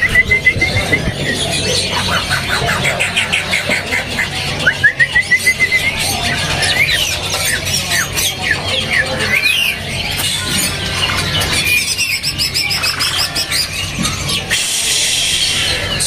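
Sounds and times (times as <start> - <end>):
bird singing whistled notes: 0.0 - 1.4, 4.6 - 9.8.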